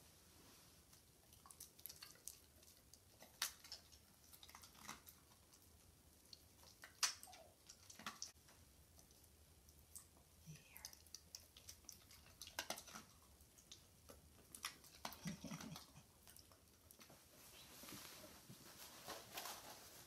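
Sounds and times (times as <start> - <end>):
dog chewing treats: 1.1 - 10.3, 10.9 - 17.2.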